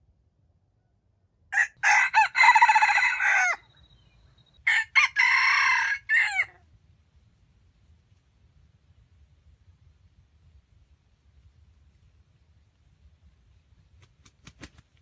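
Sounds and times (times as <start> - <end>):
rooster crowing: 1.6 - 3.7, 4.6 - 6.6.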